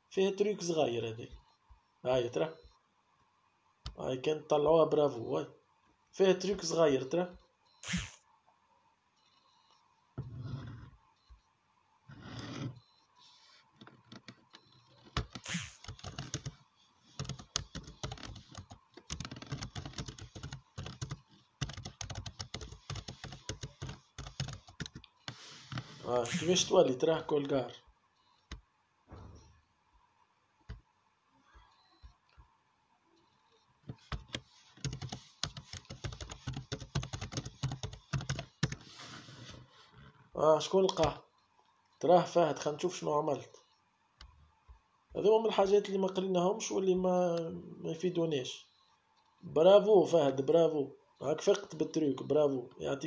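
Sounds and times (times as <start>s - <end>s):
typing on computer keyboard: 14.0s - 26.4s, 33.9s - 38.8s.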